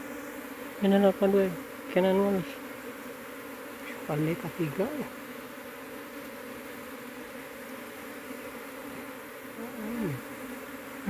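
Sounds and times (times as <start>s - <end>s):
bees buzzing: 0.0s - 11.0s
short voice sound: 9.8s - 10.2s.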